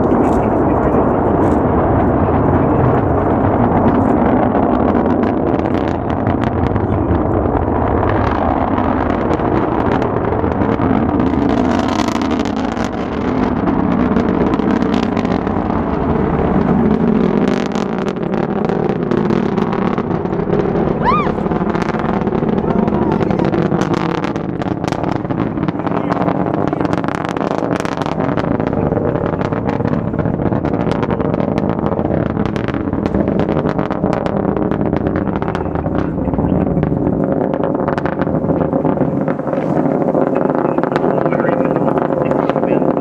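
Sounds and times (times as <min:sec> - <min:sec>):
people's voices: 0:00.0 - 0:04.4, 0:21.0 - 0:21.5, 0:22.5 - 0:24.1, 0:25.6 - 0:30.4, 0:35.4 - 0:37.0, 0:38.5 - 0:43.0
rocket engine rumble with crackling: 0:00.0 - 0:43.0
person whooping: 0:21.0 - 0:21.4.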